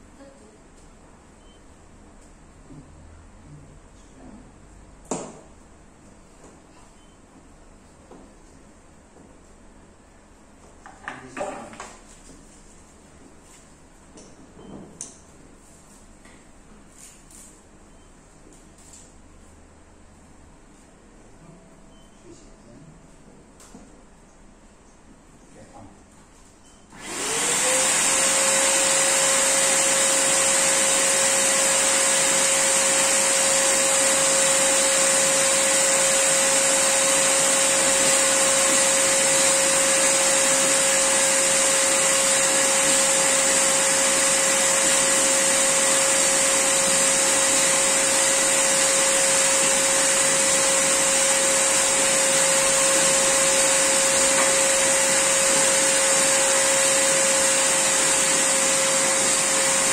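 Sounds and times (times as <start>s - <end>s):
electric air pump whining: 26.9s - 59.9s.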